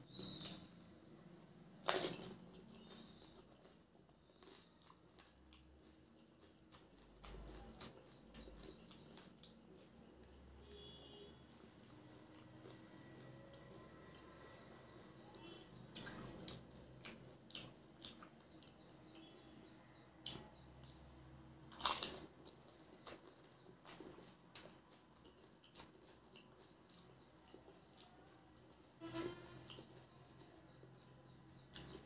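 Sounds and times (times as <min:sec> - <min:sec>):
wet chewing: 0:01.4 - 0:32.0
loud crunching bite: 0:01.8 - 0:10.2, 0:21.7 - 0:28.1.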